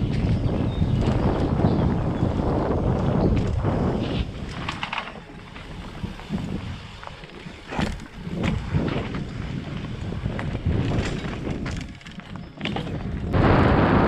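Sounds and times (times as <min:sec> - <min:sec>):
bike knocking and rattling: 0:00.0 - 0:13.4
tyres rumbling over dirt: 0:00.0 - 0:14.0
wind buffeting microphone: 0:00.0 - 0:14.0.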